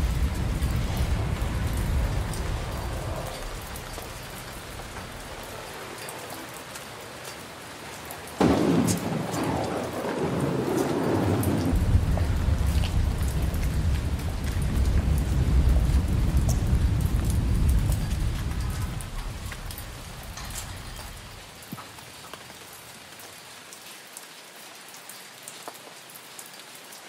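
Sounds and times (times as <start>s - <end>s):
thunderclap: 0.0s - 6.2s, 8.2s - 21.6s
rolling rumble of thunder: 0.0s - 6.7s, 8.2s - 21.6s
steady rain: 0.0s - 27.0s.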